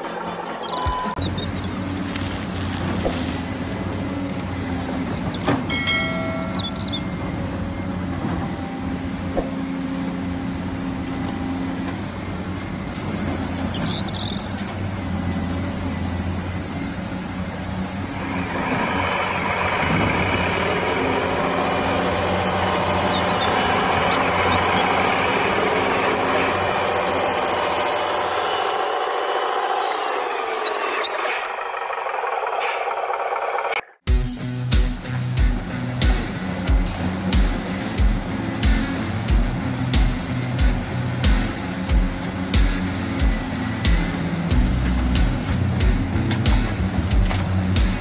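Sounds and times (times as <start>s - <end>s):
vehicle engine running: 0.0s - 48.0s
high whirring: 15.9s - 33.9s.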